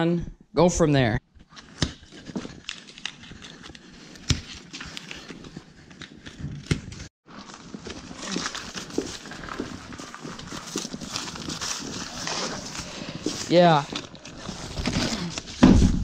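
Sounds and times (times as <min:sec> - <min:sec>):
plastic shrink wrap crinkling: 0:07.3 - 0:15.6.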